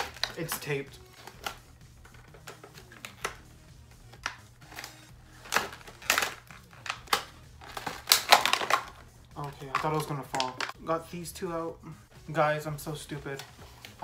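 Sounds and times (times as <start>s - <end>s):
plastic crinkling: 4.2s - 10.8s.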